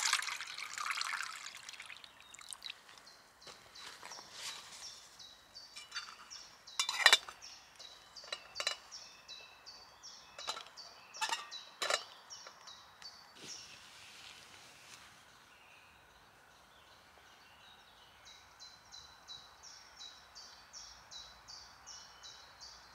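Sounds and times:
metal pot clinking: 5.8s - 7.4s, 8.2s - 9.0s, 10.4s - 12.2s.

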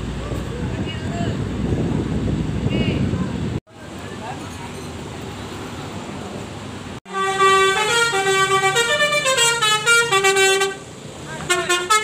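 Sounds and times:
low engine rumble: 0.0s - 12.0s
bus horn playing a tune: 7.1s - 12.0s.

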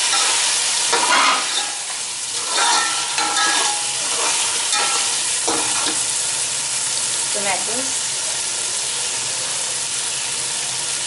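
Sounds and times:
metal spoon scraping a pot: 0.0s - 6.1s
meat sizzling in a pot: 0.0s - 11.0s.

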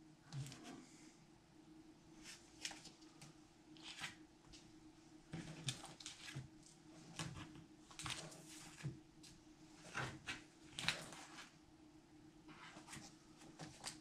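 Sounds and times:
faint steady hum: 0.0s - 14.0s
plastic sleeves rustling: 2.2s - 4.7s, 5.3s - 11.6s.

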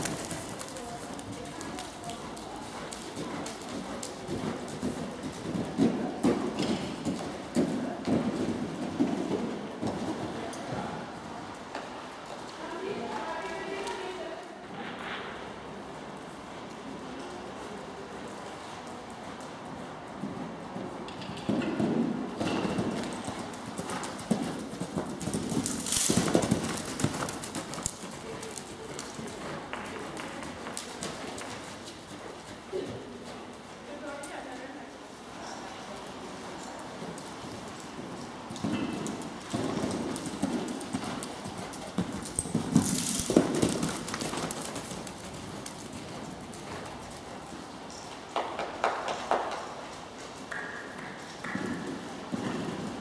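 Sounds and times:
horse hooves thudding on soft ground: 20.2s - 33.6s, 35.4s - 53.0s.

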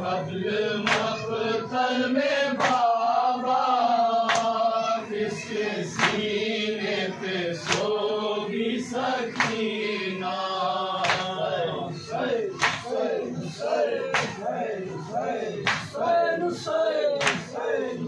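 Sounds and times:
men chanting a lament: 0.0s - 18.0s
chest-beating slaps: 0.8s - 1.2s, 2.6s - 2.9s, 4.3s - 4.6s, 5.9s - 6.3s, 7.6s - 8.0s, 9.3s - 9.6s, 11.0s - 11.5s, 12.6s - 12.9s, 14.0s - 14.4s, 15.6s - 15.9s, 17.2s - 17.5s.

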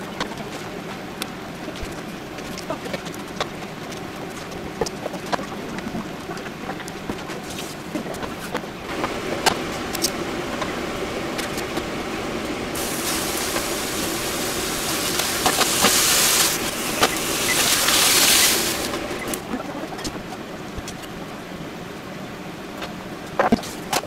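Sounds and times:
steady low noise: 8.7s - 20.8s
steak sizzling in a frying pan: 12.8s - 19.2s.

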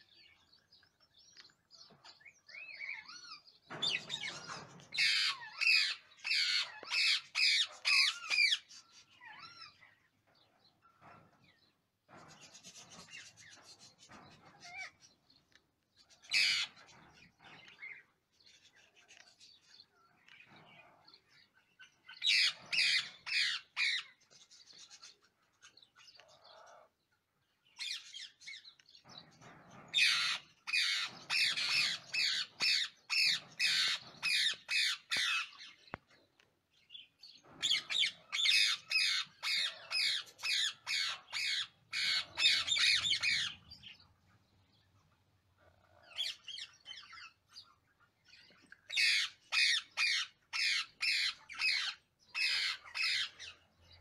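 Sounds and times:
parakeets rhythmic begging calls: 2.5s - 10.0s, 16.2s - 16.8s, 22.1s - 24.2s, 29.9s - 35.8s, 37.6s - 44.0s, 48.9s - 53.6s.

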